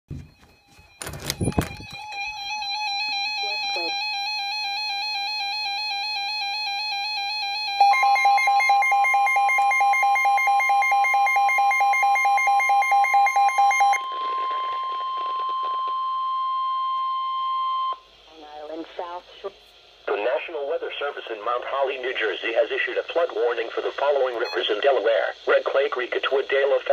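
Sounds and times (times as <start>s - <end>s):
warbling electronic alarm: 0.1s - 18.0s
rapid beeping alarm: 0.2s - 18.0s
long steady warning tone: 0.2s - 19.2s.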